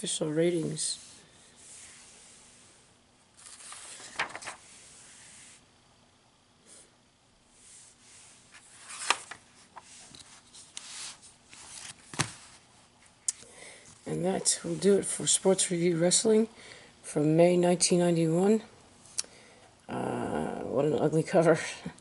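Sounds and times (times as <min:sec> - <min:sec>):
magazine pages rustling: 0:03.4 - 0:05.3, 0:08.5 - 0:12.6.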